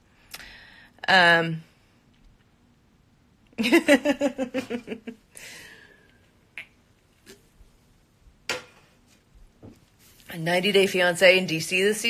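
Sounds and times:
woman's voice: 1.0 - 1.7, 10.3 - 12.0.

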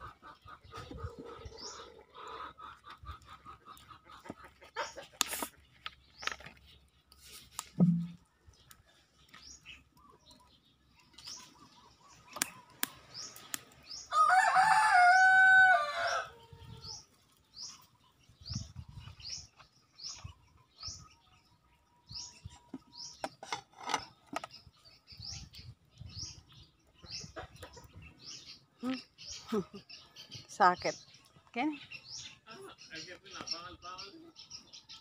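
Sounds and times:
small birds chirping: 0.0 - 35.0
short low thump: 7.8 - 8.2
rooster crowing: 14.1 - 16.6.

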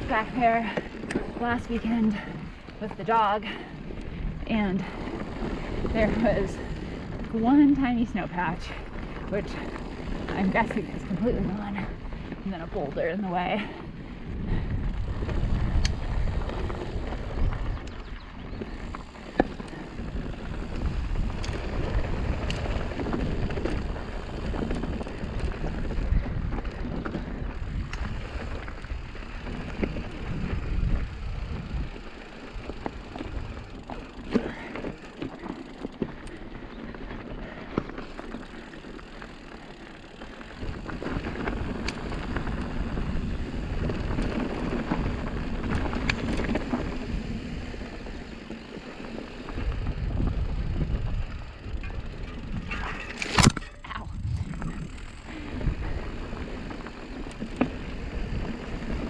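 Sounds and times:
wind on the microphone: 0.0 - 33.8, 49.5 - 59.0
bike rattles and clicks: 0.0 - 59.0
bike tyres crunching over stones: 0.0 - 59.0.

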